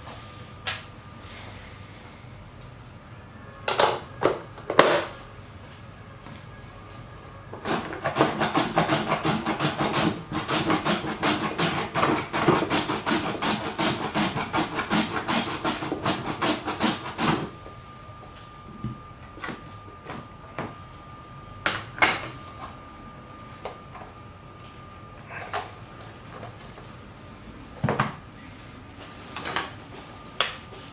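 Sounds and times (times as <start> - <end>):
carrot rasping on grater blade: 7.7 - 17.4.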